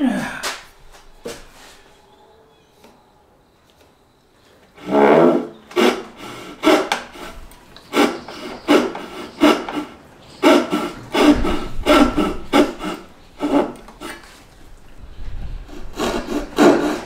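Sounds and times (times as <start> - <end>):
hand saw cutting wood: 4.8 - 14.4, 15.7 - 17.0.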